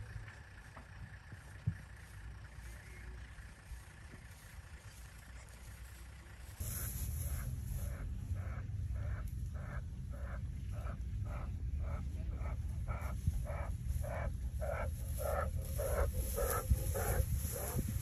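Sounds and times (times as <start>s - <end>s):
low engine rumble: 0.0s - 18.0s
lion panting: 6.6s - 18.0s.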